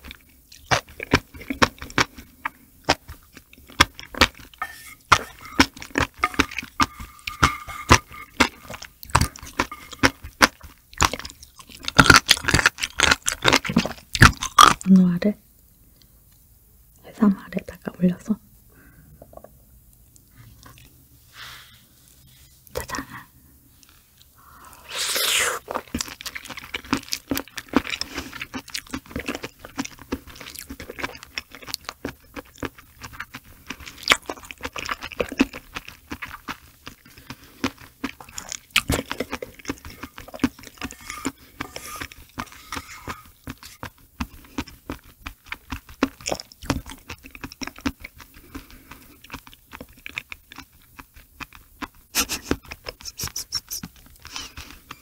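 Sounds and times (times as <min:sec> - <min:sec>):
wet chewing mouth sounds: 0:00.0 - 0:14.8, 0:24.2 - 0:55.0
loud bite: 0:24.4 - 0:26.2.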